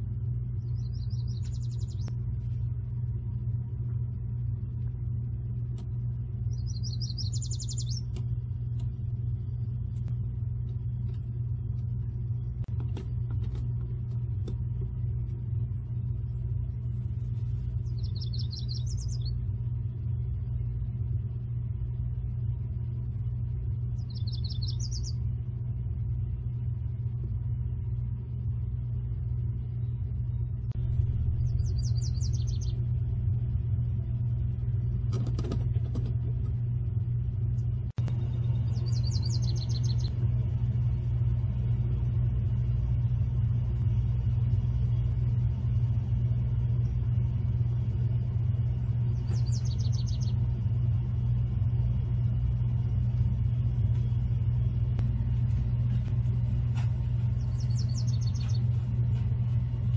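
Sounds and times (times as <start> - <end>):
steady low rumble: 0.0 - 59.9
songbird trilling: 0.6 - 2.1, 6.5 - 8.2, 17.8 - 19.4, 24.0 - 25.2, 31.4 - 32.8, 38.4 - 40.2, 49.1 - 50.4, 57.4 - 58.7.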